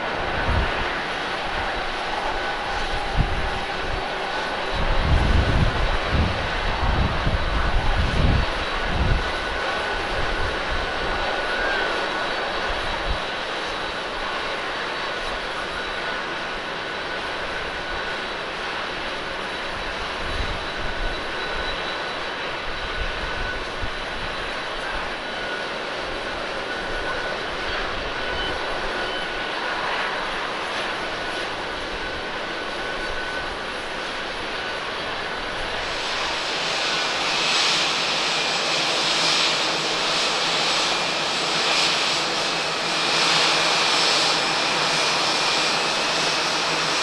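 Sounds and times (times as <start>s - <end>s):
jet engines running: 0.0s - 47.0s.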